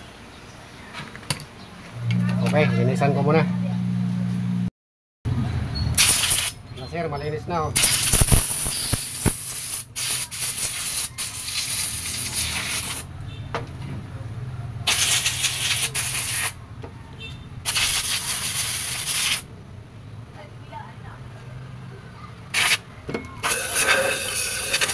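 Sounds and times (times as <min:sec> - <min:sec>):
compressed air blow gun blasts: 0:06.0 - 0:06.6, 0:07.8 - 0:13.1, 0:14.9 - 0:16.6, 0:17.7 - 0:19.5, 0:22.5 - 0:22.8, 0:23.4 - 0:24.9.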